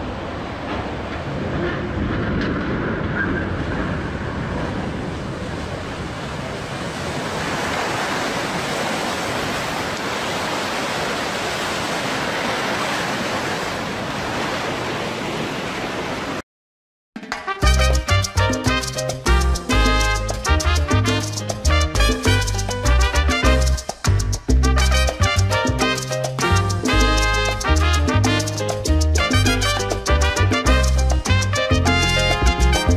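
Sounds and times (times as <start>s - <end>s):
wind buffeting microphone: 0.0s - 10.0s
rush of water: 0.0s - 16.4s, 17.6s - 32.9s.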